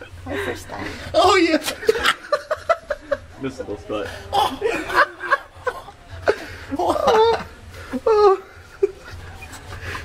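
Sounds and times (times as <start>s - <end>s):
man laughing: 1.7s - 3.3s, 4.3s - 9.3s.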